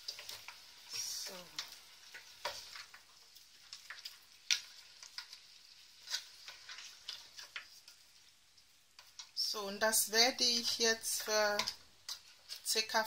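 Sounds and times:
wooden spoon scraping pot: 0.0s - 8.0s
faint sizzle: 0.0s - 13.0s.

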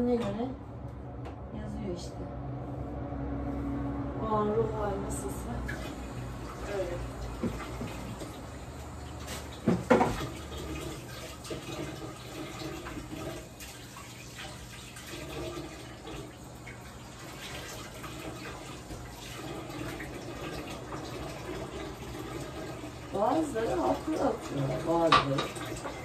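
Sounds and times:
tap water running into sink: 5.6s - 26.0s.

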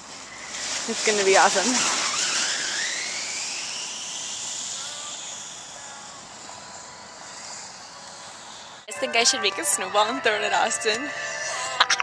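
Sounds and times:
snow tube sliding on snow: 0.0s - 12.0s.

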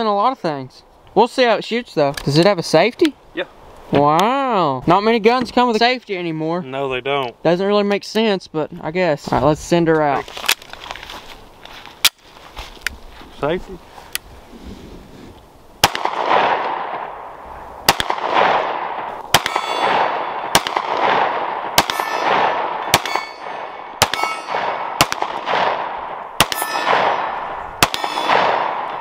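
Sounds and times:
pistol shots with echo: 15.8s - 17.3s, 17.9s - 29.0s
metallic ring of steel targets: 19.4s - 20.0s, 21.8s - 24.9s, 26.4s - 28.5s.

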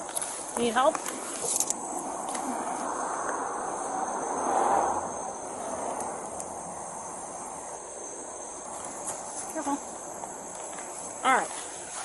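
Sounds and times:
night insects chorus: 0.0s - 12.0s
soft rushing noise: 0.2s - 9.6s.

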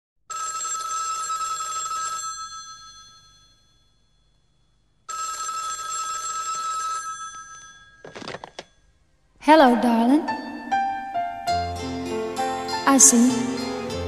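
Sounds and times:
telephone bell ringing: 0.3s - 8.9s.

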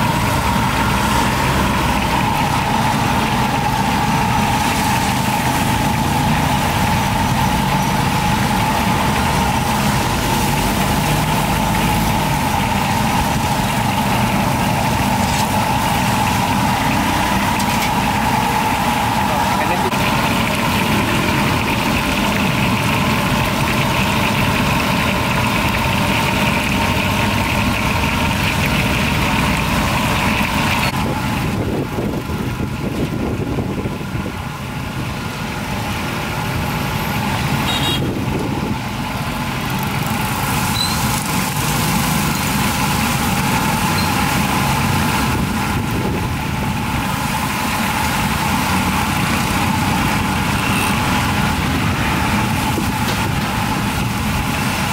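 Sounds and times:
engine rumble with constant hum: 0.0s - 54.9s.

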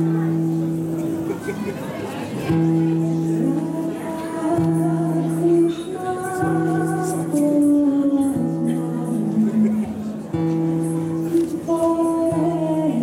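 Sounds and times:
woman singing: 3.2s - 10.1s, 11.3s - 13.0s.

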